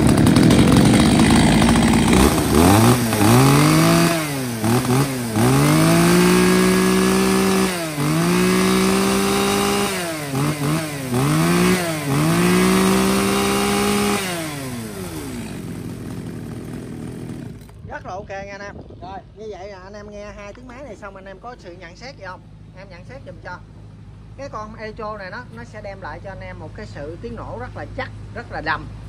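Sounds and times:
chainsaw revving and idling: 0.0 - 17.8.

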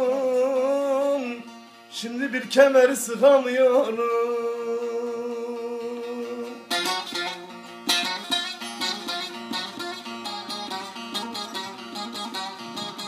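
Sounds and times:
picked and strummed lute: 0.0 - 13.0.

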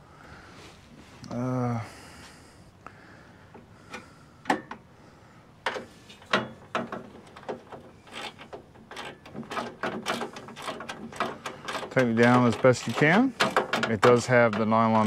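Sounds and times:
nut driver clicking and scraping: 5.6 - 15.0.

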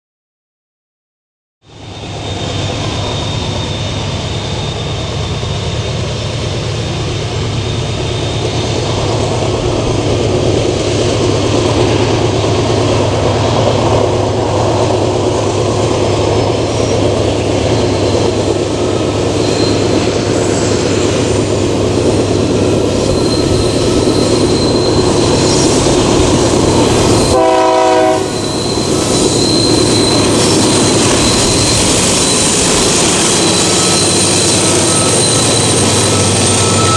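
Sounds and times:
diesel locomotive engine rumble: 1.6 - 36.9
train wheels squealing: 1.6 - 36.9
train horn blast: 27.2 - 28.6.

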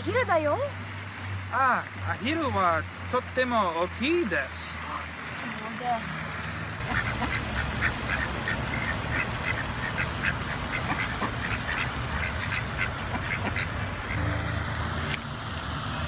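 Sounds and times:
ducks quacking: 6.8 - 14.4.

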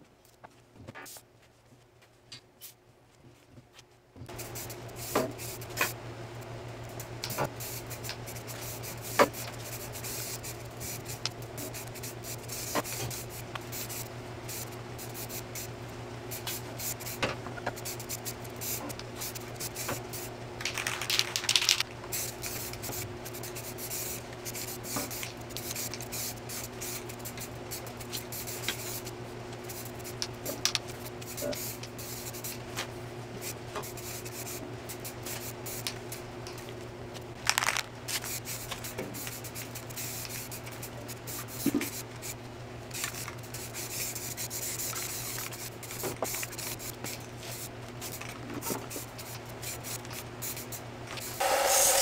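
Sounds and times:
steady low hum: 0.0 - 52.0
spray paint can hissing: 7.2 - 15.7, 17.8 - 29.0, 31.2 - 32.6, 38.1 - 40.7, 41.5 - 48.3, 49.0 - 52.0.

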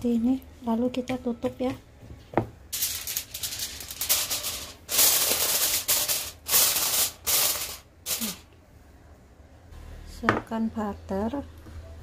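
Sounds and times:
aluminium foil crinkling: 2.7 - 8.5.

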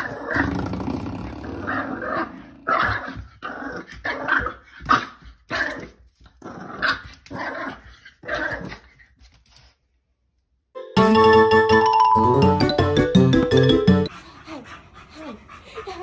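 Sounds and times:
puppy growling and yapping: 0.0 - 0.6, 1.4 - 9.1.

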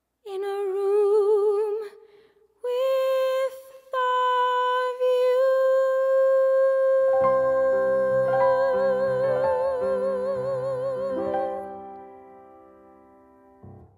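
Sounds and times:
woman singing long notes: 2.6 - 11.8
instrumental accompaniment: 7.1 - 13.9.

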